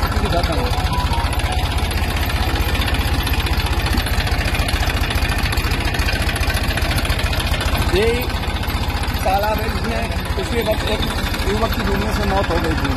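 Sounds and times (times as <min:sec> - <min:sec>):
diesel tractor engine running: 0:00.0 - 0:12.9.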